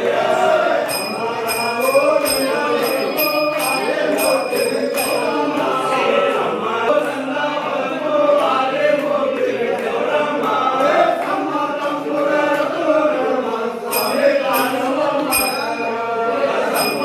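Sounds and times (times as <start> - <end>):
men chanting together: 0.0 - 17.0
small bell rung rapidly: 0.6 - 6.0, 13.9 - 17.0.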